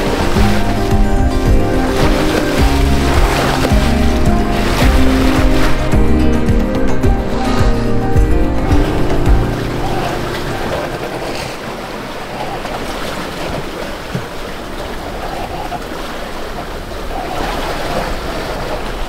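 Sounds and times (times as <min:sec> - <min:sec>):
wind on microphone: 0:00.0 - 0:11.8
sea rushing: 0:00.0 - 0:19.0.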